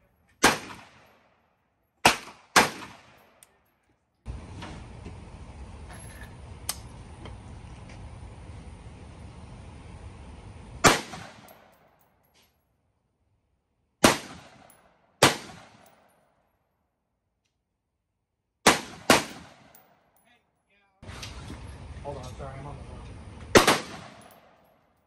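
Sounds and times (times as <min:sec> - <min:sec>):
rifle shots with echo: 0:00.4 - 0:01.4, 0:02.0 - 0:03.4, 0:10.8 - 0:11.8, 0:14.0 - 0:16.1, 0:18.6 - 0:19.9, 0:23.5 - 0:24.7.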